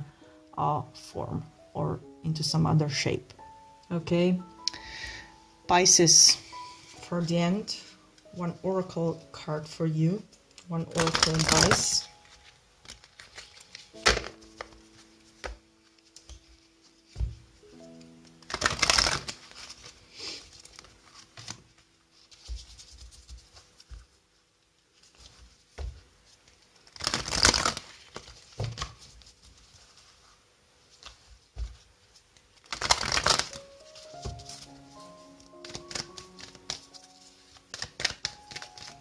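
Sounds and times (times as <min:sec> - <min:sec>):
card handling rustles and clicks: 0:10.4 - 0:24.1, 0:25.0 - 0:30.2, 0:30.9 - 0:39.0
cards being shuffled: 0:10.5 - 0:24.2, 0:24.9 - 0:39.0.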